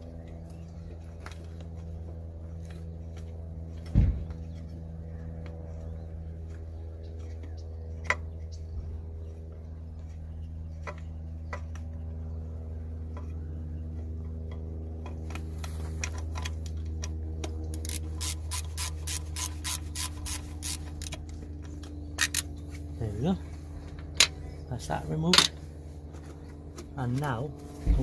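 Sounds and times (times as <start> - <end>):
steady low hum: 0.0 - 28.0
ratchet wrench clicking: 17.8 - 21.2, 22.2 - 22.4.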